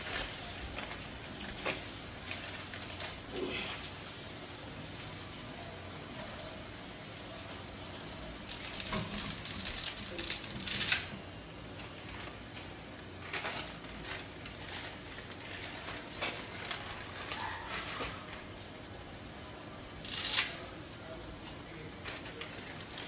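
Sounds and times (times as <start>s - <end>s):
plastic bag crinkling: 0.0s - 4.3s, 7.8s - 18.6s, 21.8s - 23.0s
hiss of boiling and frying: 0.0s - 23.0s
dry spaghetti snapping: 8.4s - 11.2s, 11.8s - 18.4s, 20.0s - 20.7s.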